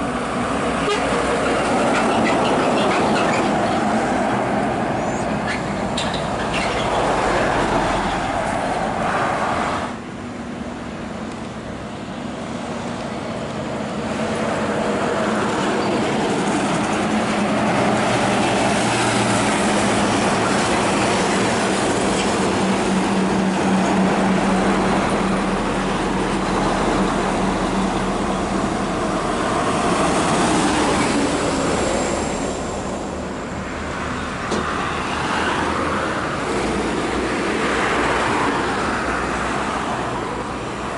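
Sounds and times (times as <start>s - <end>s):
tyre and road rumble: 0.0s - 9.9s
diesel trucks passing: 0.0s - 40.9s.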